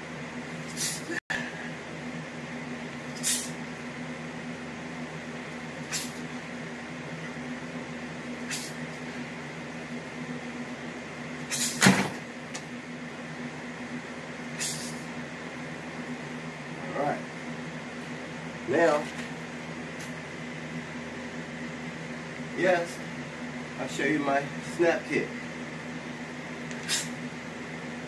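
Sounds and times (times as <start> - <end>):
steady low hum: 0.0 - 28.0
leg kick swish: 11.5 - 12.2
thud: 11.8 - 12.2.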